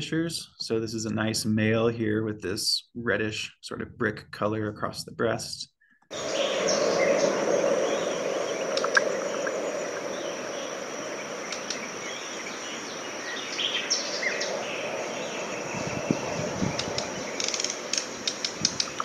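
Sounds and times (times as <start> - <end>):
small birds chirping: 6.1 - 19.0
steady background hiss: 6.2 - 19.0
dry ticks: 8.7 - 9.6, 11.4 - 11.9, 16.7 - 19.0.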